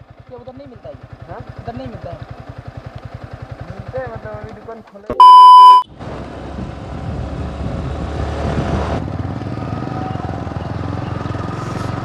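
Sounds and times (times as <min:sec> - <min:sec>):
motorcycle engine running: 0:00.0 - 0:05.1
wind noise: 0:06.0 - 0:09.1.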